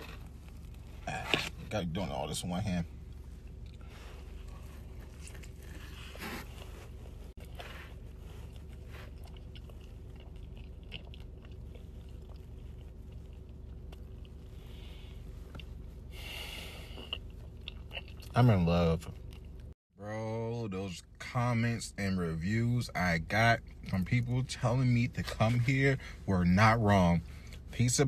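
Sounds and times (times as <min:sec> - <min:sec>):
steady low hum: 0:00.0 - 0:28.0
person chewing crunchy food: 0:03.0 - 0:16.1, 0:16.8 - 0:18.4, 0:19.0 - 0:19.8.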